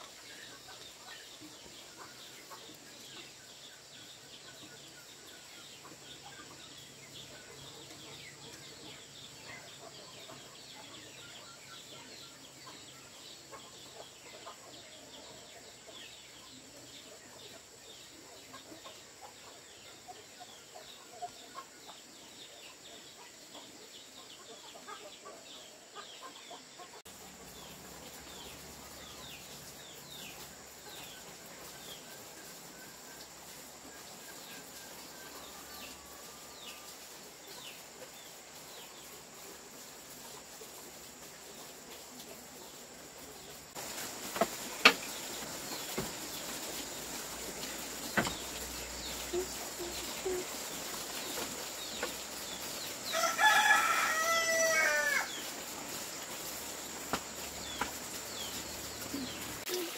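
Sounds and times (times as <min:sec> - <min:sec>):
chicks cheeping: 0:00.1 - 0:59.9
hens clucking: 0:23.0 - 0:59.9.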